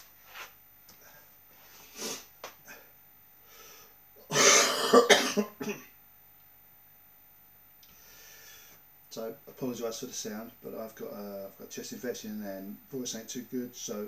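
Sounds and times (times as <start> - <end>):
man coughing: 4.2 - 6.0.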